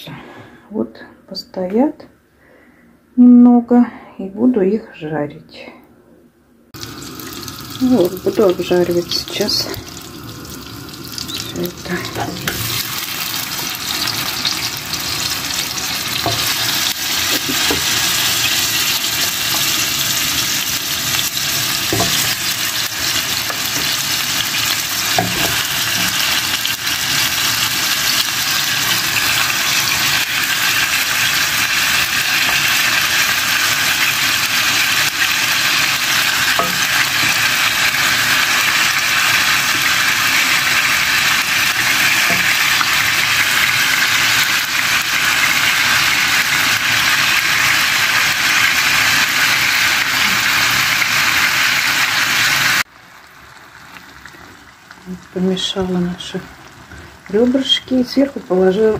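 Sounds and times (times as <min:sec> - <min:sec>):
meat sizzling in a frying pan: 0:06.8 - 0:58.9.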